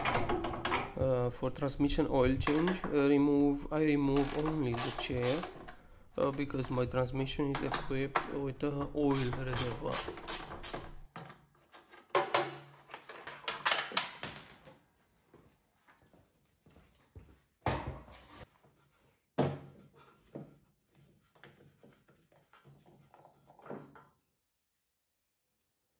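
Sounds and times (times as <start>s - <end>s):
wrenches clicking and clinking: 2.2s - 11.0s, 11.8s - 14.9s.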